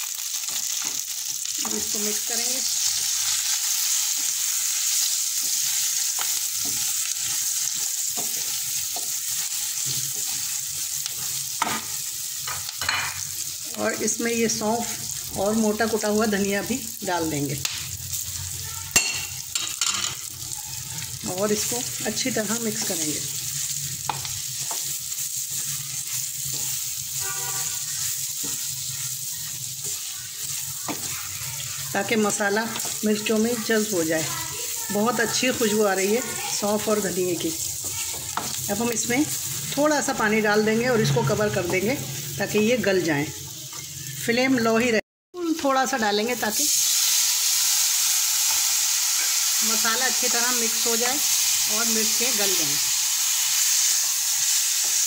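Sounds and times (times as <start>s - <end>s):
spices sizzling in hot oil: 0.0s - 55.0s
spatula scraping a pan: 2.6s - 13.2s, 22.7s - 33.0s.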